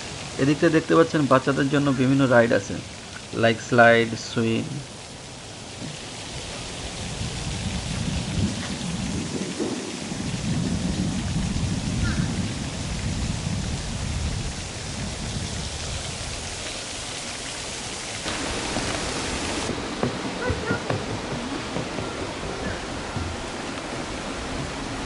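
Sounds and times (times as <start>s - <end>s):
wind buffeting microphone: 5.8s - 25.0s.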